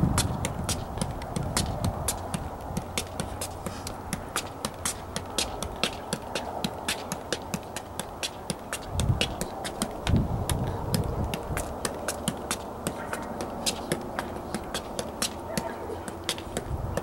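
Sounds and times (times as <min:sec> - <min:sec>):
low rumble: 0:00.0 - 0:00.4
soccer ball taps: 0:00.0 - 0:17.0.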